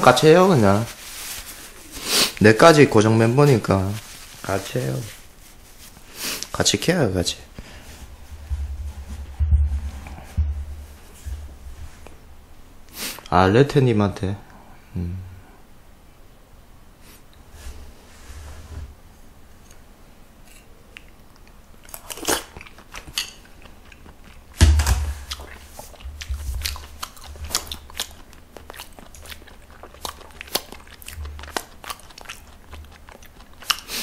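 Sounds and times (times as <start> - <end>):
loud thump: 8.4 - 11.8
man chewing and crunching food: 20.5 - 34.0.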